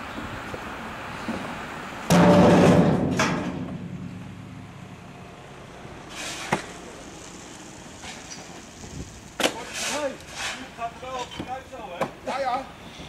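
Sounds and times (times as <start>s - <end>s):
loud crash with ringing rumble: 2.1s - 4.8s.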